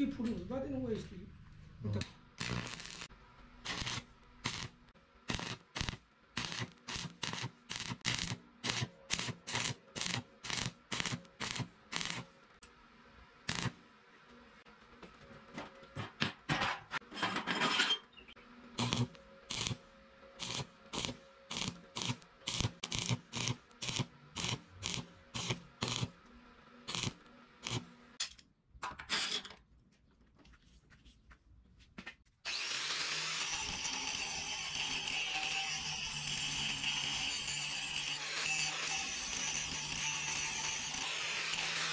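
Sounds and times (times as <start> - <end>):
welding arc crackling: 2.0 - 12.4, 13.5 - 13.8, 18.8 - 19.8, 20.4 - 26.2, 26.9 - 28.1, 32.5 - 41.9
angle grinder running: 2.4 - 3.1, 32.5 - 41.9.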